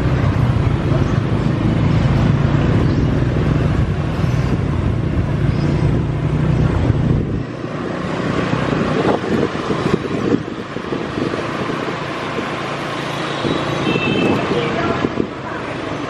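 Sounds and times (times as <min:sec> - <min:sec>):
low engine drone: 0:00.0 - 0:11.7
motor scooters passing: 0:00.0 - 0:16.0.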